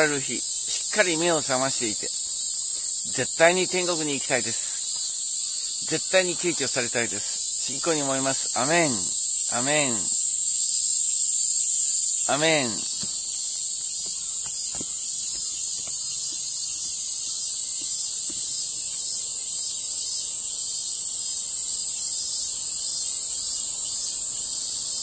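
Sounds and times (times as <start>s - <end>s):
cicadas droning: 0.0s - 25.0s.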